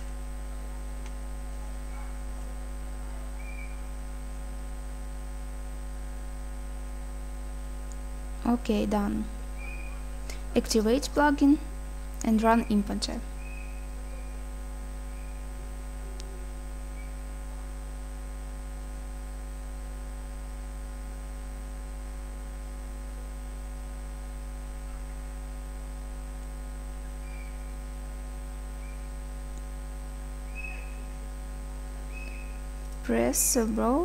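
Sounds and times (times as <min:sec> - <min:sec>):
electrical mains hum: 0:00.0 - 0:34.0
faint high-pitched whine: 0:00.0 - 0:34.0.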